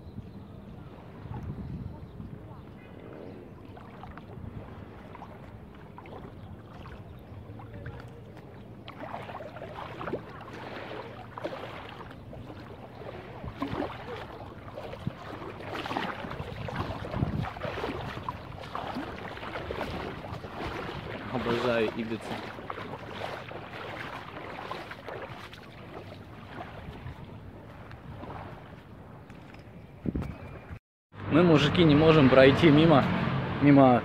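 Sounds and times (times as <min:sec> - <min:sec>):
seawater splashing around legs: 0:02.3 - 0:29.4.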